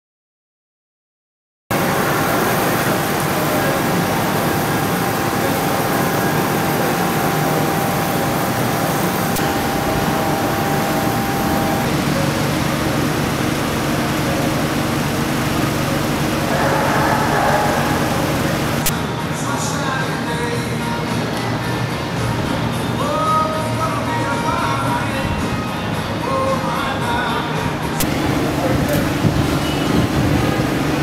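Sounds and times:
faint steady whine: 0:01.7 - 0:19.1
mechanical hum: 0:01.7 - 0:31.0.

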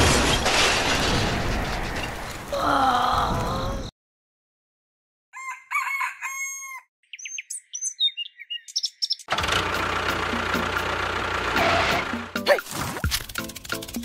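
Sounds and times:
rooster crowing: 0:05.3 - 0:06.9
small birds chirping: 0:07.0 - 0:09.3.

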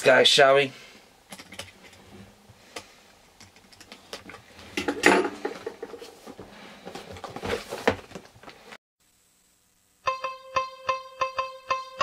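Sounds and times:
hands handling cardboard box: 0:05.4 - 0:08.6.

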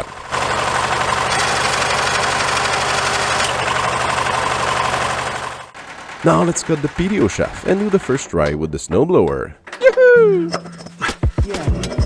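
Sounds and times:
tractor engine running: 0:00.0 - 0:09.6.

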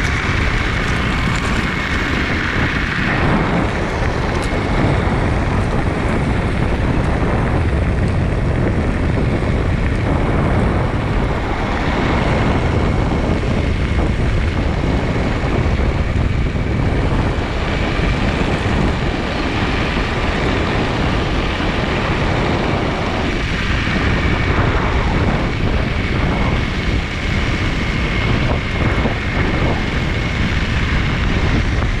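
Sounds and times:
tyres rumbling on gravel: 0:00.0 - 0:32.0
wind buffeting microphone: 0:00.0 - 0:32.0.

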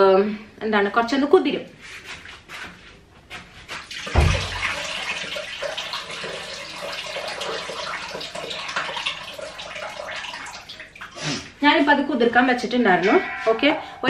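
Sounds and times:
tap water running into sink: 0:03.8 - 0:11.2.

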